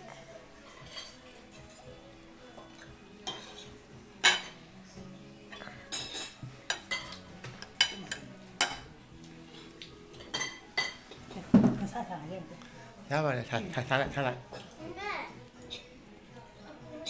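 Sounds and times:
cutlery clinking on plates: 0.6s - 2.0s, 2.6s - 4.6s, 5.5s - 9.0s, 10.1s - 11.9s.

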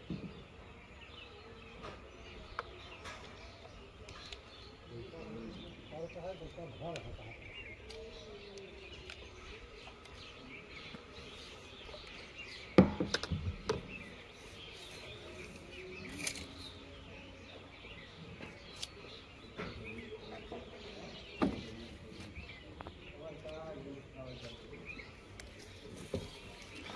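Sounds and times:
birds chirping: 0.0s - 26.9s
plastic pipe knocking and clattering: 12.8s - 13.8s.

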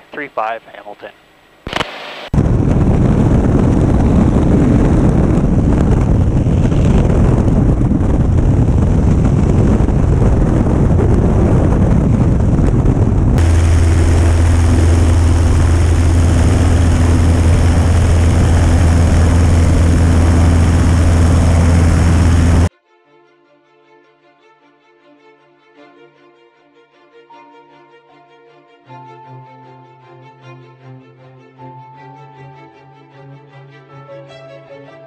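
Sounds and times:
heavy rushing noise: 1.7s - 22.7s
light aircraft engine at full power: 2.4s - 22.7s.

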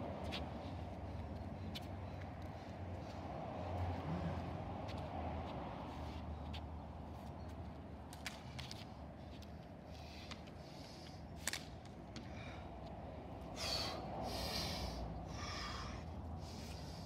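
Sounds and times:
man breathing hard: 12.2s - 17.0s.

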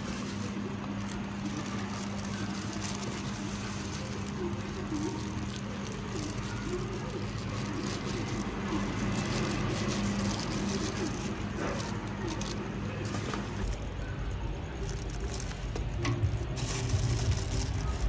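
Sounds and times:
motor traffic: 0.0s - 14.0s
steady low hum: 0.0s - 18.0s.

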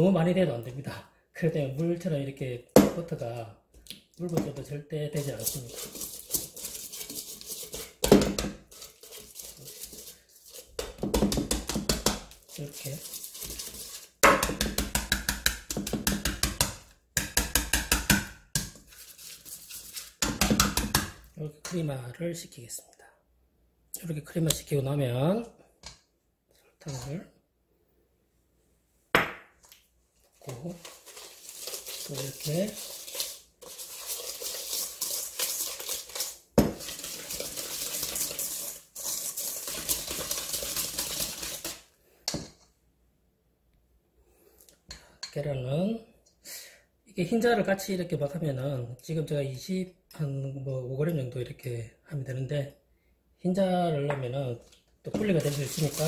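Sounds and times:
whisk clinking in metal bowl: 5.2s - 8.1s, 30.8s - 41.8s, 55.2s - 56.0s.

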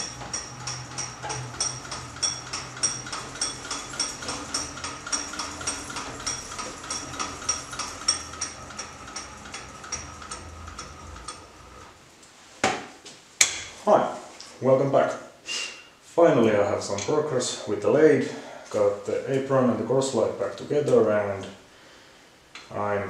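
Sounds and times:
lathe handwheel clicking: 0.0s - 11.8s.

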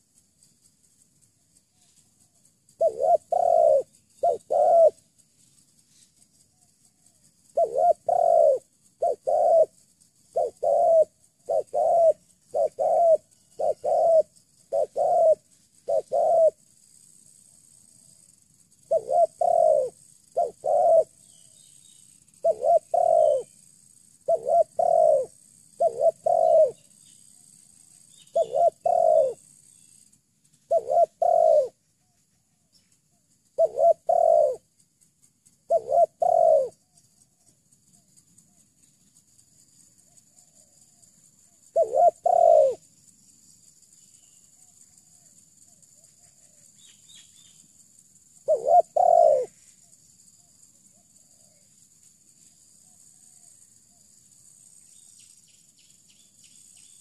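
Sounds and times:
dove cooing: 2.7s - 5.0s, 7.0s - 16.6s, 18.8s - 21.3s, 22.4s - 23.5s, 24.2s - 26.9s, 28.1s - 29.5s, 30.7s - 31.8s, 33.6s - 34.6s, 35.7s - 36.8s, 41.7s - 42.9s, 48.4s - 49.6s.

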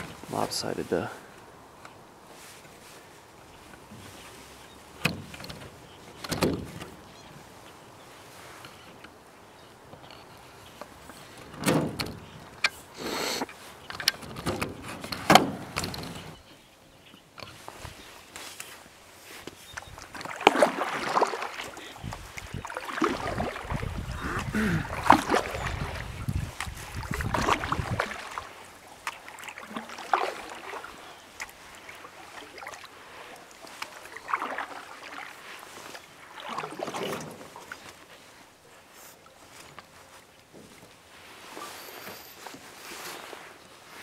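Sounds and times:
paddle splashing in water: 17.2s - 44.0s.

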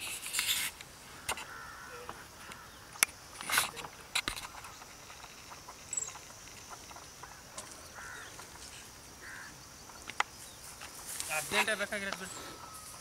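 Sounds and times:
short rustle: 10.4s - 13.0s.

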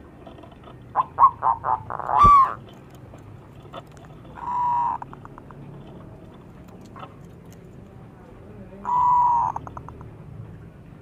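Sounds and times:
dove cooing: 0.9s - 2.6s, 3.6s - 7.1s, 8.8s - 10.0s.

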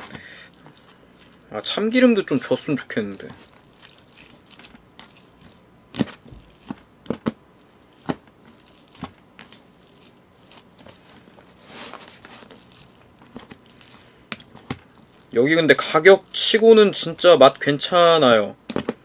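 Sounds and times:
moist squishing of rice: 0.0s - 18.4s.

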